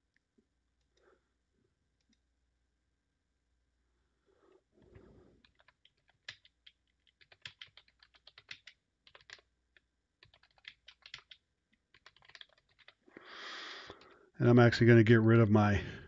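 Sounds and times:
typing on keyboard: 0:05.4 - 0:13.2, 0:13.8 - 0:14.2.

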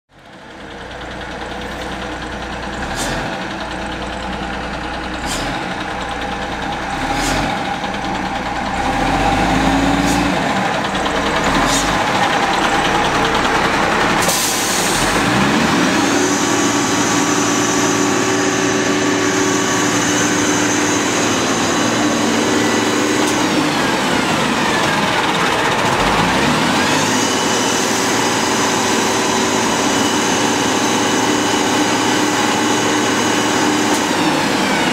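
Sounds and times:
garbage truck diesel engine: 0:00.1 - 0:34.9
engine high whine: 0:00.9 - 0:34.9
air brake hiss: 0:14.2 - 0:15.2.

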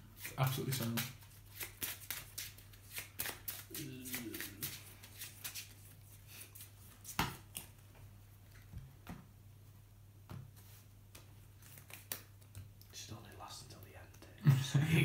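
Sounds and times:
cards tapping and clicking: 0:00.2 - 0:05.7.

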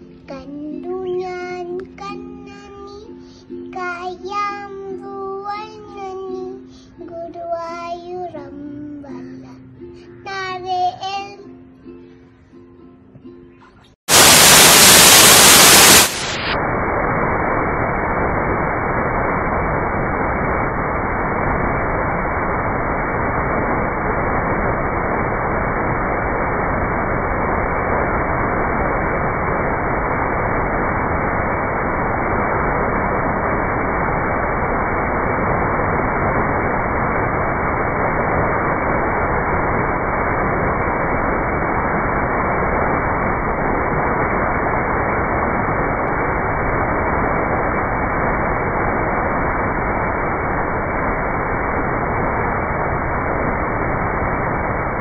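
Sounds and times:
waterfall rushing: 0:14.1 - 0:27.1.

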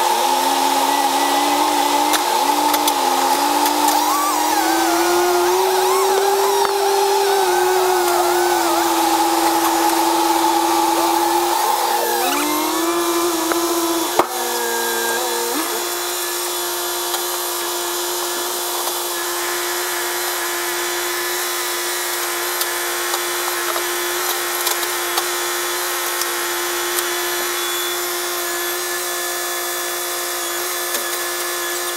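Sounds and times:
sped-up engine whine: 0:00.0 - 0:16.9.

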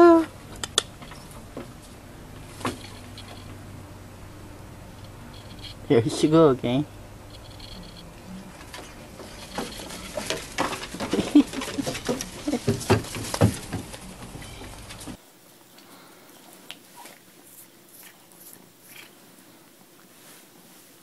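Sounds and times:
kitten scampering on wooden decking: 0:00.4 - 0:03.6, 0:07.3 - 0:15.2.

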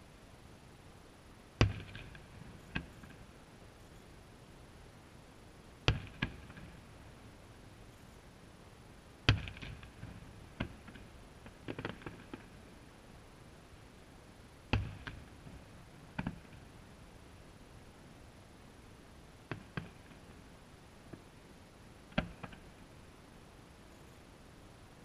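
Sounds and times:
firework crackle: 0:09.3 - 0:12.7.

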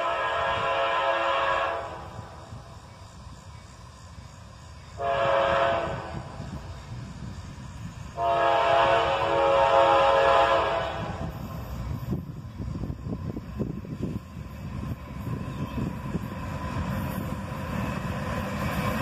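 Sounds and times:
train air horn blasts: 0:00.0 - 0:02.2, 0:05.0 - 0:06.5, 0:08.2 - 0:11.4
low rumble of train: 0:00.0 - 0:19.0.

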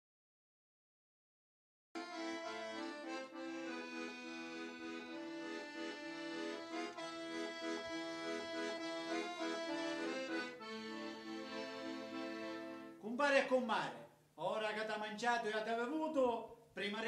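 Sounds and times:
piano accordion playing a tune: 0:02.0 - 0:13.0.

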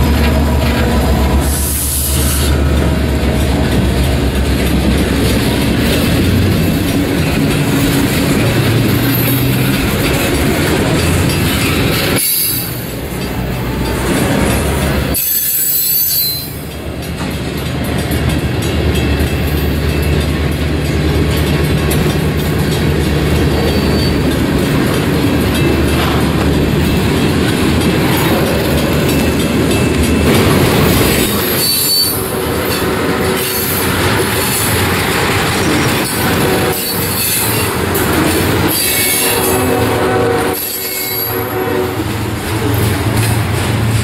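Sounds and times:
train wheels rumbling on rail: 0:00.0 - 0:44.0
high-pitched wheel squeals: 0:12.2 - 0:12.8, 0:15.2 - 0:16.6, 0:23.5 - 0:24.3, 0:31.4 - 0:32.3.

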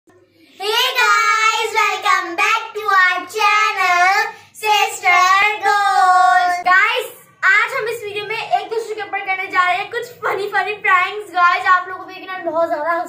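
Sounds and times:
girls singing: 0:03.1 - 0:06.7.

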